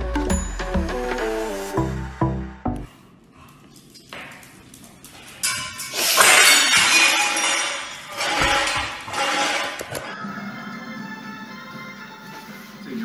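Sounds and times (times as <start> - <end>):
glass shattering: 5.4 - 9.8.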